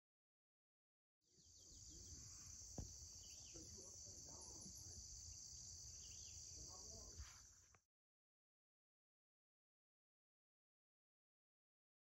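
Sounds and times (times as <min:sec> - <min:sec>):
insects buzzing: 0:01.3 - 0:07.8.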